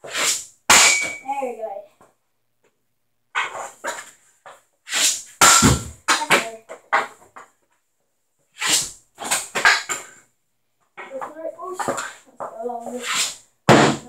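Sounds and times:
hockey stick hitting pucks: 0.0 - 1.3, 4.9 - 7.4, 8.7 - 10.2, 11.0 - 14.0.

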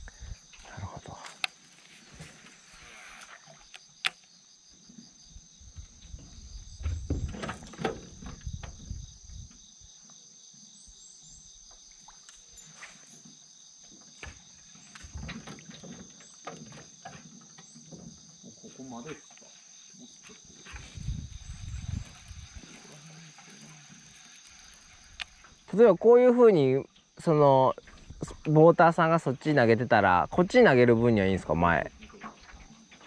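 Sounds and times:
insect chorus droning: 0.0 - 33.0
low knocks and rumbling: 5.7 - 9.6.

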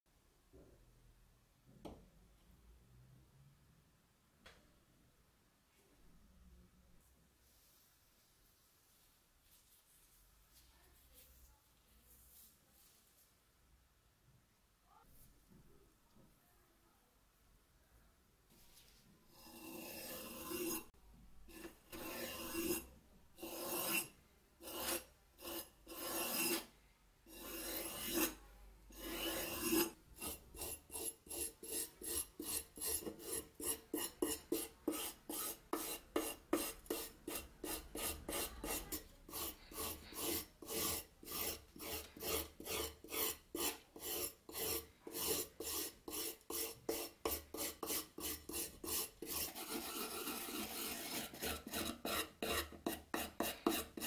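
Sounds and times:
wire brush scrubbing rusty metal: 21.5 - 26.7, 27.3 - 54.0.

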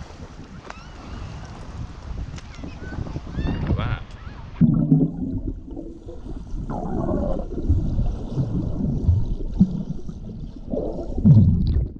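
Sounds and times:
soft low thumps of swim strokes: 0.0 - 11.9
underwater sloshing and gurgling: 4.4 - 11.9.

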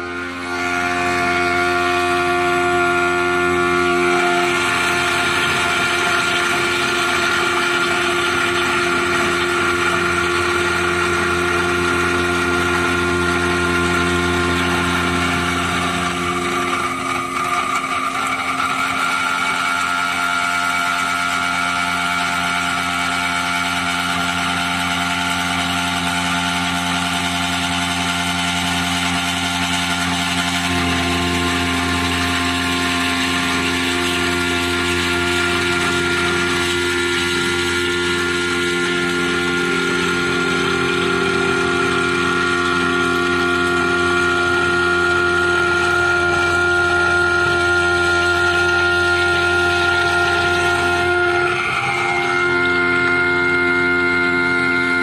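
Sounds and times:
milling machine cutting metal: 0.0 - 55.0.

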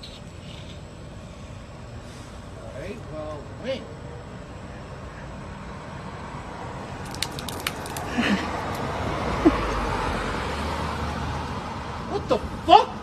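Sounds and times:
outdoor street noise: 0.0 - 13.0
vehicle passing: 1.1 - 13.0.

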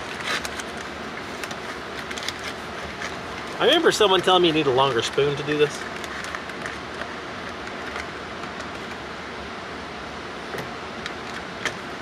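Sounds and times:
foil pouch crinkling: 0.0 - 8.1.

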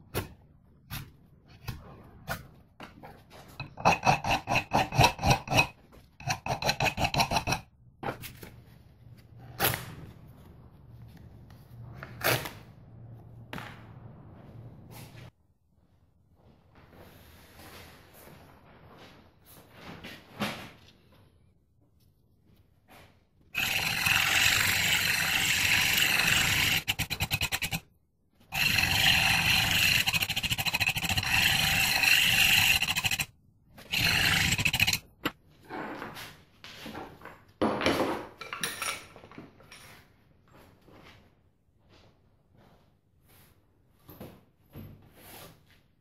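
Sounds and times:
scrapes and knocks: 2.8 - 8.6, 22.9 - 27.8, 28.6 - 40.0
power tool grinding steel: 23.6 - 27.8, 28.5 - 33.3, 33.9 - 35.0.

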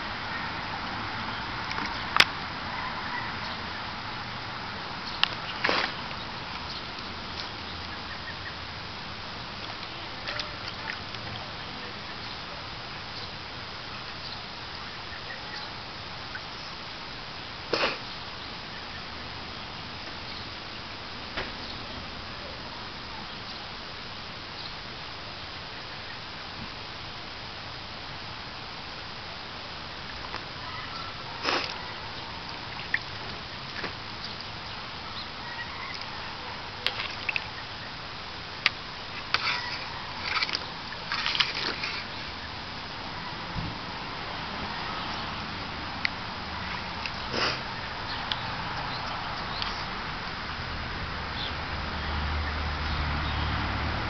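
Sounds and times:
steady background hiss: 0.0 - 54.0
paw splashing water: 9.6 - 12.2, 30.1 - 33.9, 35.4 - 38.0, 39.0 - 43.5
paws splashing in water: 35.4 - 37.6, 39.2 - 42.5.

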